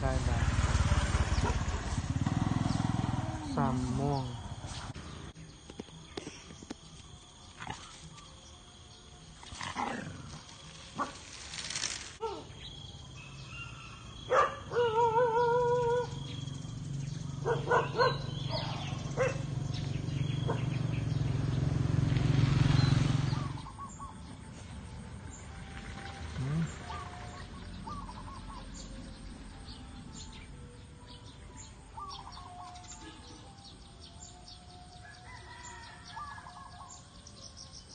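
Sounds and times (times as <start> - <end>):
dog growling: 9.5 - 10.4.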